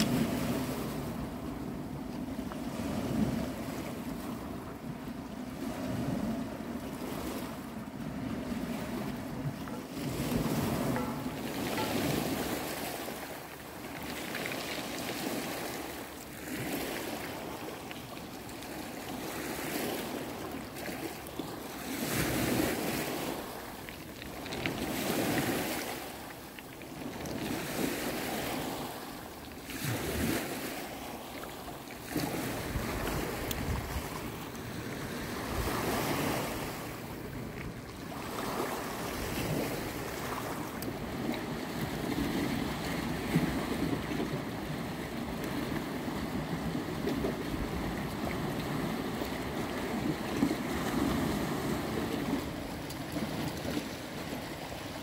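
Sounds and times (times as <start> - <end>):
wind buffeting microphone: 0.0 - 15.6, 32.1 - 54.7
sea waves on pebbly shore: 0.0 - 55.0.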